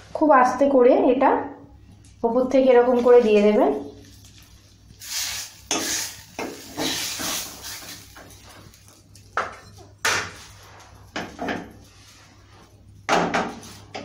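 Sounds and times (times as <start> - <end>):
ladle scraping a wok: 5.0 - 8.8.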